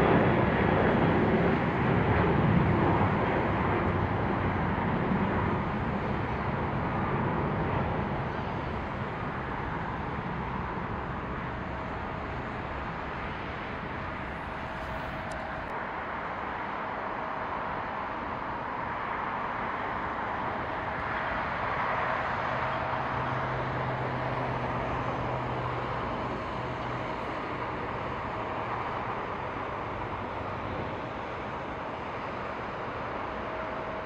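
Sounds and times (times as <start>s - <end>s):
distant jet engines taxiing: 0.0s - 34.0s
low hum: 12.0s - 15.8s.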